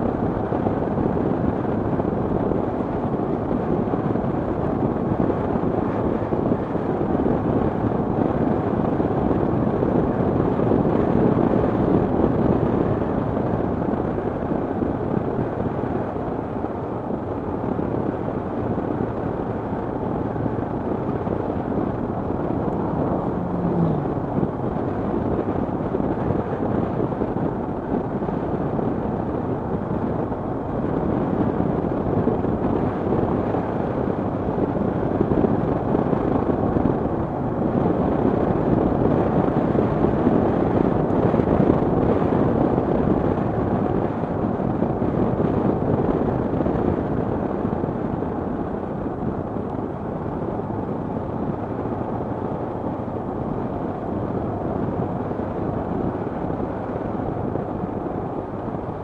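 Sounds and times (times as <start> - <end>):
rushing wind: 0.0 - 59.0
motorcycle engine: 18.6 - 27.0.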